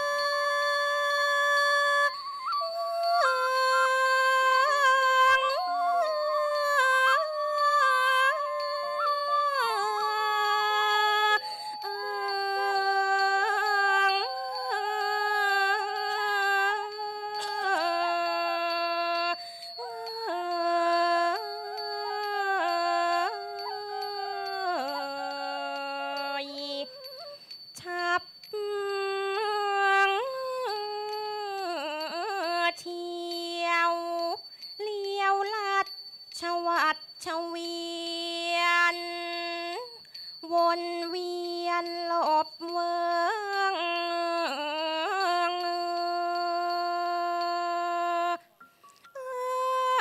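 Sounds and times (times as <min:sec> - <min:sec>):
wind instrument slow melody: 0:00.0 - 0:32.6.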